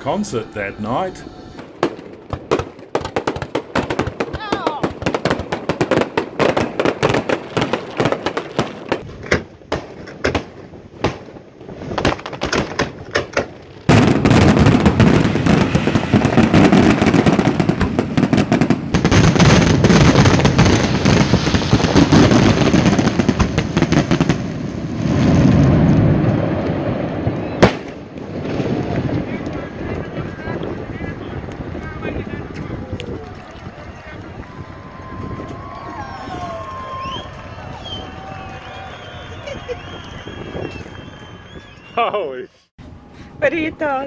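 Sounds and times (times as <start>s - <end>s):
fireworks cracking and banging: 0.1s - 42.0s
sharp firework bang: 8.9s - 32.3s.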